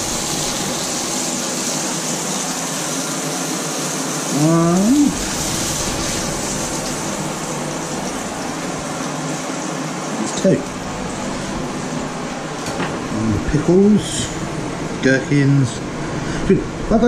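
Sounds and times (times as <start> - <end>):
burger patties sizzling in a pan: 0.0 - 9.7.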